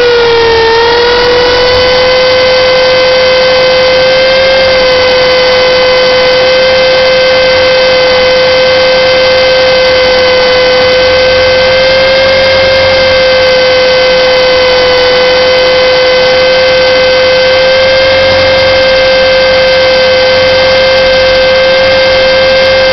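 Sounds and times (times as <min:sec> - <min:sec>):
rc helicopter motor whine: 0:00.0 - 0:22.9.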